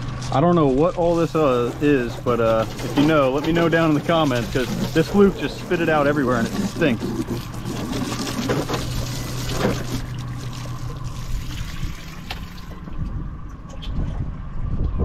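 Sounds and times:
steady low hum: 0:00.0 - 0:15.0
hose water spraying on deck: 0:00.8 - 0:12.9.

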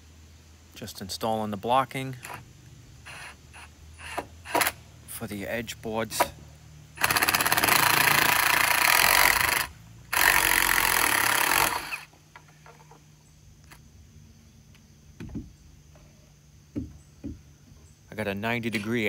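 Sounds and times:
cordless drill driving screws: 0:03.1 - 0:04.8, 0:07.0 - 0:12.1
faint knocks: 0:14.7 - 0:17.9.

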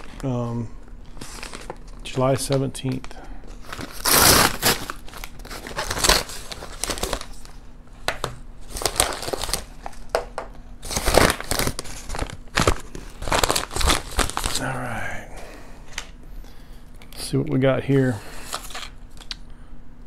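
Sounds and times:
paper bag tearing and rustling: 0:01.2 - 0:02.0, 0:03.6 - 0:07.5, 0:08.7 - 0:09.8, 0:10.8 - 0:14.8.

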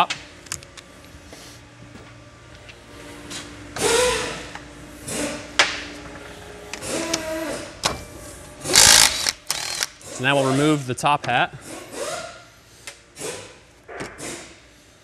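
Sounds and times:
cordless power tool whirring: 0:08.7 - 0:10.2.

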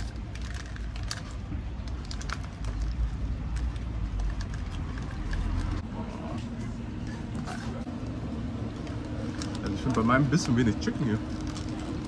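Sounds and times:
paper crinkling: 0:00.0 - 0:05.8, 0:08.6 - 0:12.0
street traffic rumble: 0:00.0 - 0:12.0.

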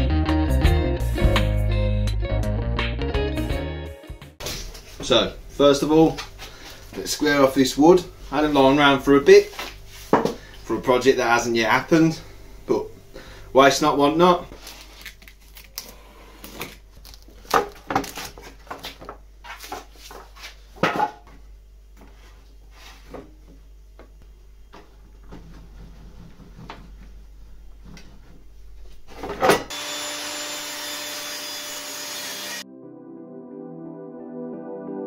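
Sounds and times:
table saw running: 0:29.7 - 0:32.6.

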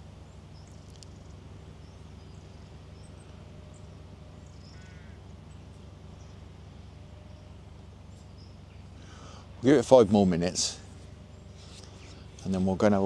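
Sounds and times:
faint high bird chirps: 0:00.0 - 0:09.4
steady low rumble: 0:00.0 - 0:13.0
crow cawing: 0:04.6 - 0:05.2.

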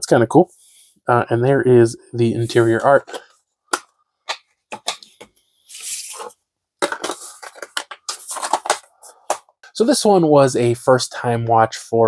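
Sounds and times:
short rustling scrape: 0:05.7 - 0:06.4.

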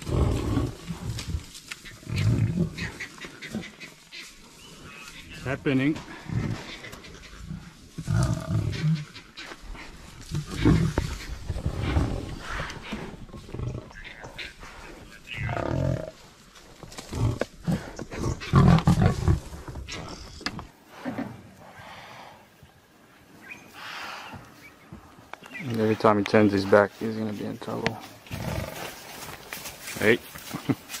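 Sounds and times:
lions growling: 0:00.0 - 0:21.7, 0:27.8 - 0:29.1.

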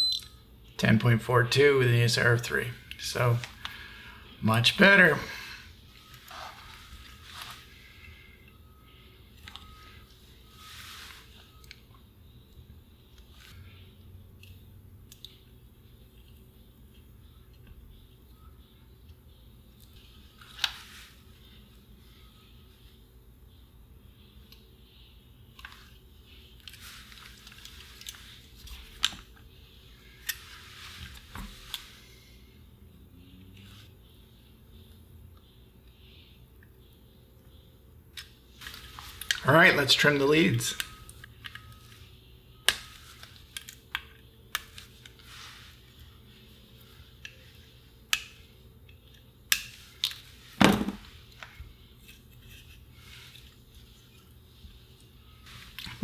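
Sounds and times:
circuit board rustling and scraping: 0:06.0 - 0:08.1.

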